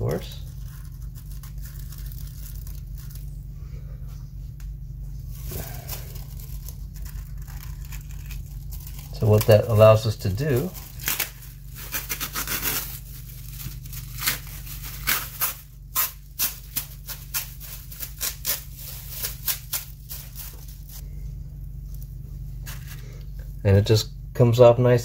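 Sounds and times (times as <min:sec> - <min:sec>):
plastic sheet crinkling: 0:00.0 - 0:03.4, 0:05.3 - 0:21.0
steady low hum: 0:00.0 - 0:25.0.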